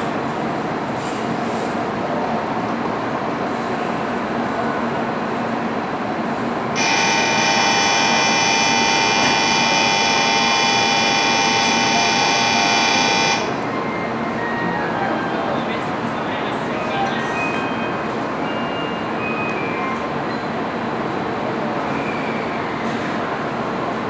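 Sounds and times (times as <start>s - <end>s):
station hum: 6.7s - 13.8s
high electronic departure bell: 6.8s - 13.6s.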